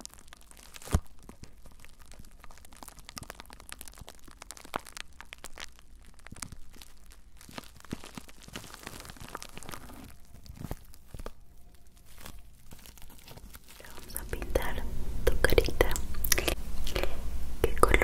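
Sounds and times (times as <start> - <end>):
bubble wrap crackling: 0.0 - 17.0.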